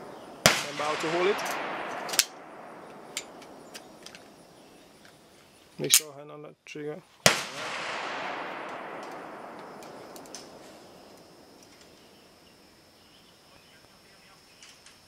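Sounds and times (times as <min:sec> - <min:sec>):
gunshot echo: 0:00.0 - 0:04.8, 0:07.3 - 0:12.2.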